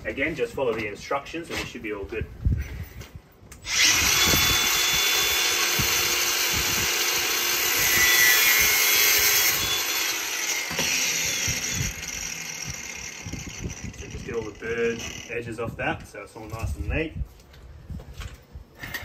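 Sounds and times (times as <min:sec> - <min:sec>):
angle grinder cutting metal: 0:03.6 - 0:15.4.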